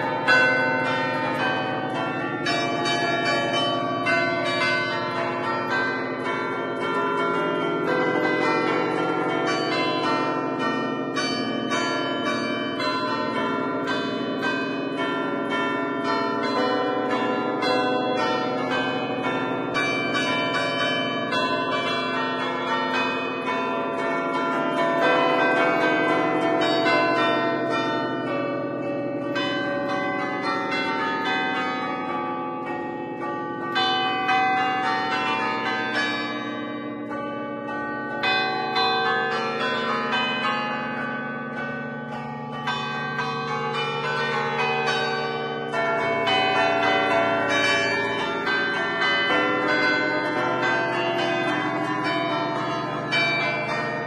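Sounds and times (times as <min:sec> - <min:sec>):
church bells ringing a tune: 0:00.0 - 0:54.0.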